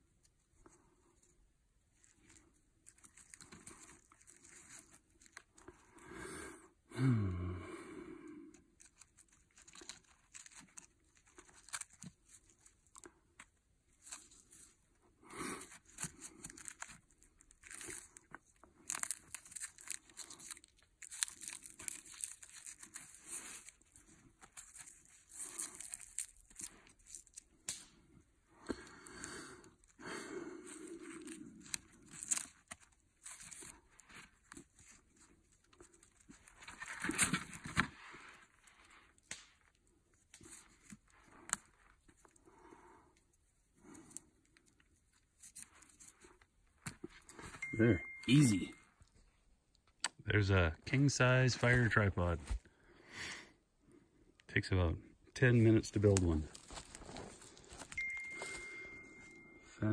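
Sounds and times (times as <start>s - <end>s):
wooden poles and cord rustling: 55.6s - 59.1s.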